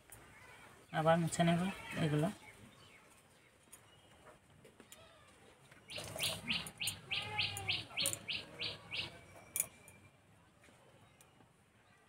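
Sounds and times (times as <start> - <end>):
bird chirping: 5.8 - 10.1.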